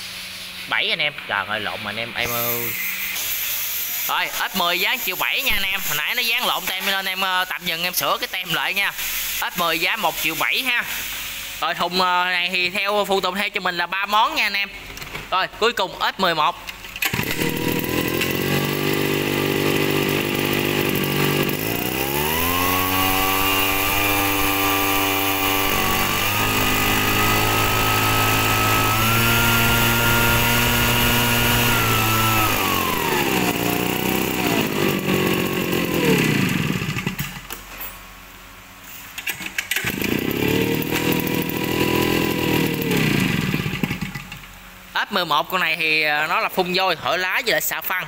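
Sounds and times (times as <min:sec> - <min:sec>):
small two-stroke engine running: 0:17.0 - 0:37.5, 0:39.3 - 0:44.5.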